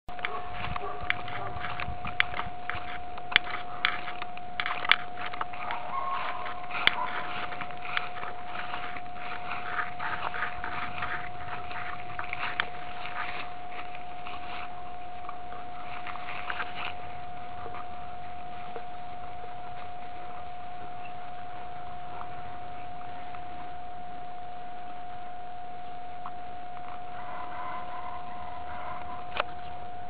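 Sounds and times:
sharp clicks: 0.1 - 17.0
dogs rustling in grass: 0.1 - 23.5
steady high hum: 0.1 - 30.0.

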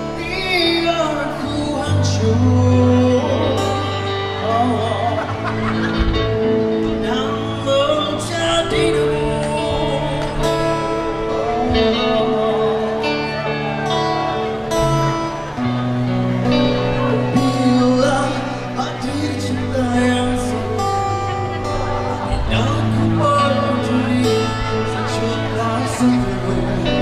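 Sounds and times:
person singing: 0.0 - 15.3, 16.4 - 27.0
acoustic and electric guitars: 0.0 - 27.0
bass guitar: 0.0 - 27.0
drums: 3.2 - 27.0.

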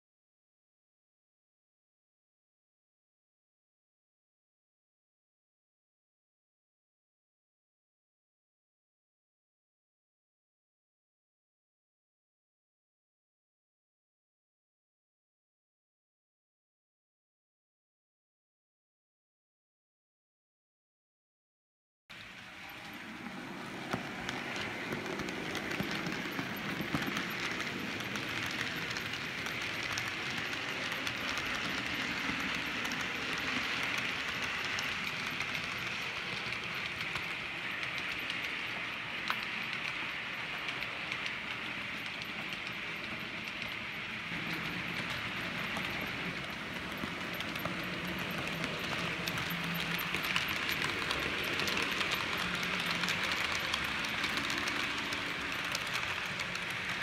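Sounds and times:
model train rolling on track: 22.1 - 57.0
wheels clicking: 22.2 - 57.0.

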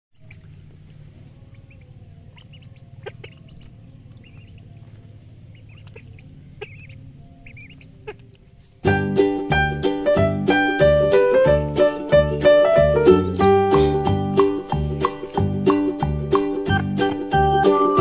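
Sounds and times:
water splashes: 0.2 - 8.6
ducklings peeping: 0.2 - 8.8
low hum: 0.2 - 18.0
children's music with piano: 8.8 - 18.0.

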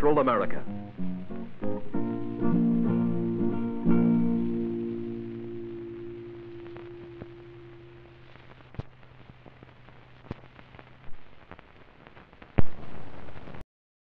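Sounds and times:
closing music: 0.0 - 8.3
film soundtrack hiss and crackle: 0.0 - 13.6
sharp pops: 8.5 - 13.5.

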